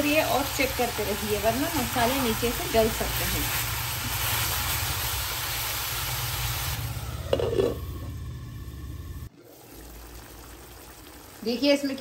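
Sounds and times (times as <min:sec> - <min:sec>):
chicken sizzling in a pan: 0:00.0 - 0:07.8.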